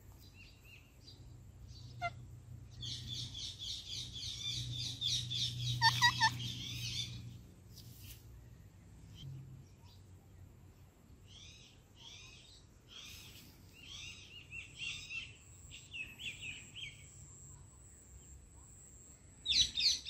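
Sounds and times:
parrots chattering: 4.4s - 7.2s
parrot squawks: 5.8s - 6.5s.

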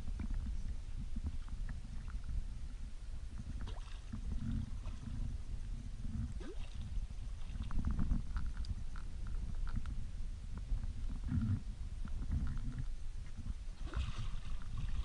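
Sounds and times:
low steady rumble of water and wind: 0.0s - 15.0s
small water splashes: 3.6s - 4.2s, 6.4s - 7.8s, 13.8s - 15.0s.

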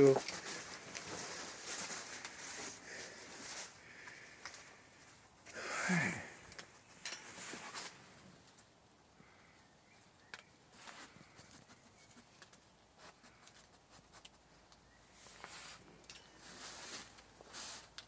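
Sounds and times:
faint rustling: 0.0s - 5.2s, 6.0s - 8.7s, 10.7s - 18.0s
man sighing: 5.5s - 6.6s.

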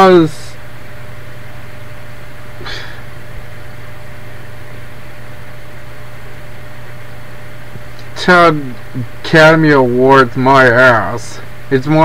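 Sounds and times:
low electrical hum: 0.0s - 12.0s
faint breathy sound: 2.6s - 3.1s.

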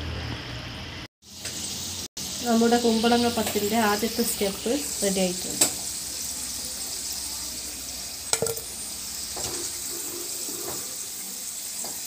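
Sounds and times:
oil sizzling deep frying: 0.0s - 12.0s.

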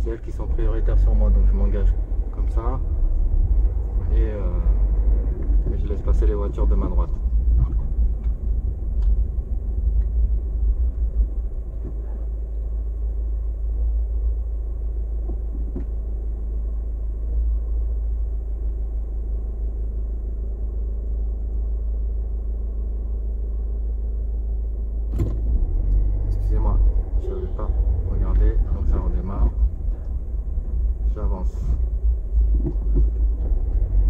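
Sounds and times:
car engine rumble inside cabin: 0.0s - 34.0s.

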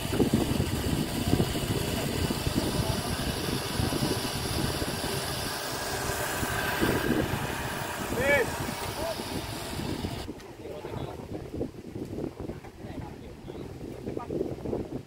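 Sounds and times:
off-road vehicle engine running: 0.0s - 10.3s.

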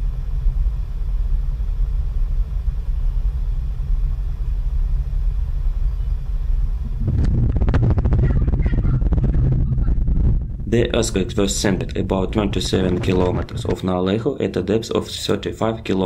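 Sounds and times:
deep steady rumble: 0.0s - 16.0s
house rattling in earthquake: 6.8s - 14.1s.

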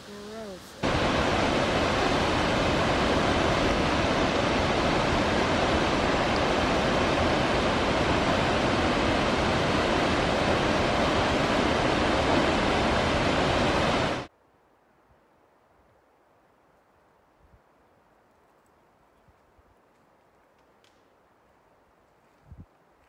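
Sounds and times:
waterfall rushing: 0.0s - 14.3s.

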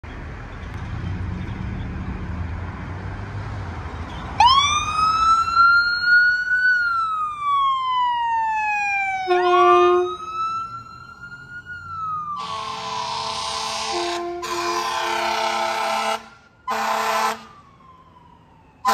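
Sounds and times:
vehicle engine rumble: 0.0s - 16.8s
road noise: 0.0s - 18.9s
ambulance siren wailing: 4.3s - 18.9s
steady horn tone: 9.3s - 10.2s, 12.4s - 17.5s.

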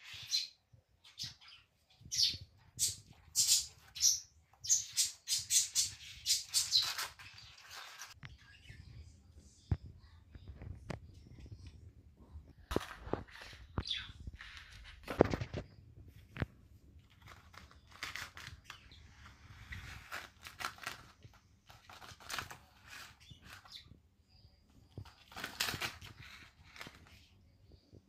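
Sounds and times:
cat scratching wicker cushion: 17.0s - 23.8s.

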